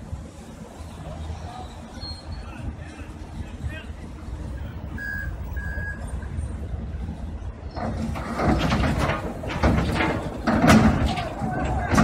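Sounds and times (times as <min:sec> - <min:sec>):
diesel engine rumbling: 0:00.0 - 0:12.0
metal scraping and clanking: 0:07.7 - 0:12.0.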